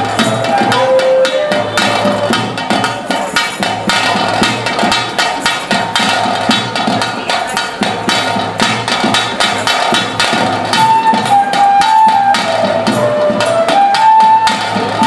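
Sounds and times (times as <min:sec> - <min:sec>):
flute melody: 0:00.0 - 0:03.2, 0:10.5 - 0:15.0
hand drum rhythm: 0:00.0 - 0:15.0.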